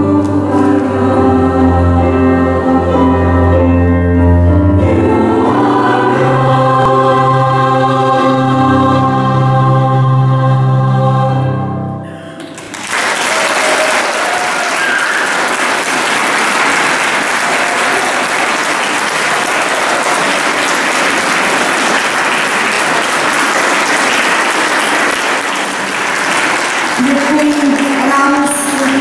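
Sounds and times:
choir holding a chord: 0:00.0 - 0:12.3
audience applause: 0:12.4 - 0:29.0.

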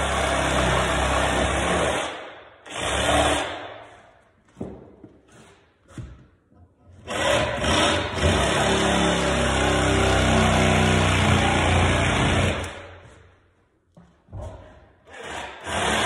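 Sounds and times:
reciprocating saw cutting wood: 0:00.0 - 0:03.7, 0:07.0 - 0:12.8, 0:15.0 - 0:16.0.

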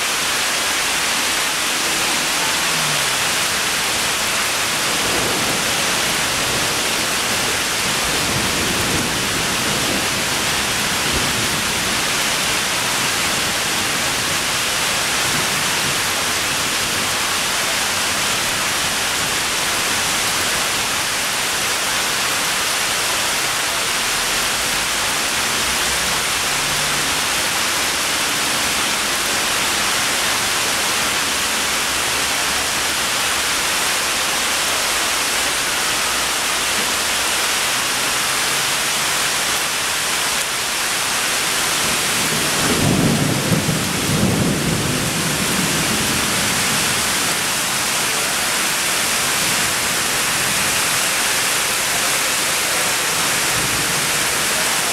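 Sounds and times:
heavy rain pouring: 0:00.0 - 0:54.9.

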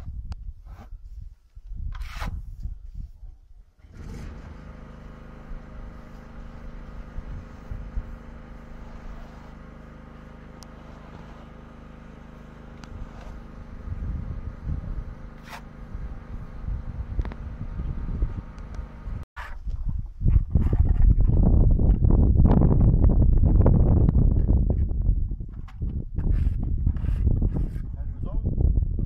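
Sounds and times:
steady motor hum: 0:03.8 - 0:19.3
uneven low rumble: 0:12.7 - 0:29.0.

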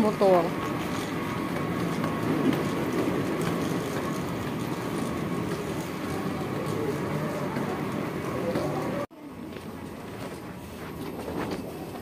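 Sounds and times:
suitcase wheels rolling on tiles: 0:00.0 - 0:09.1.

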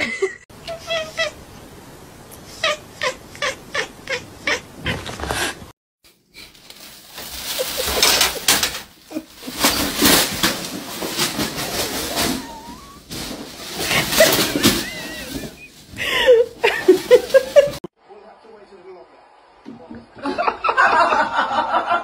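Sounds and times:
cat meowing: 0:00.7 - 0:01.4, 0:02.5 - 0:05.2, 0:12.1 - 0:13.1
plastic bag crinkling: 0:06.5 - 0:17.7.

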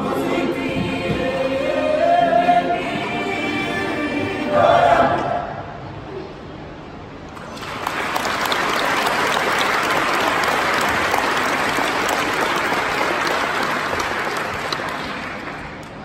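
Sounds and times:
audience applauding: 0:07.4 - 0:16.0.

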